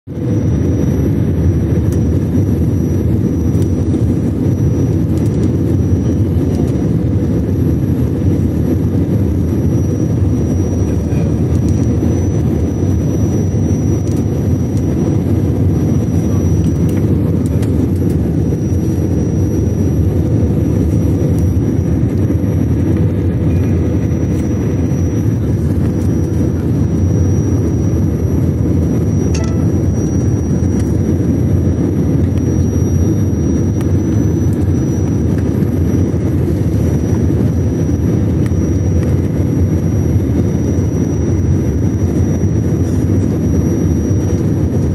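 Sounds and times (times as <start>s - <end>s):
airliner engines rumbling: 0.0s - 44.9s
faint high whine: 0.1s - 44.9s.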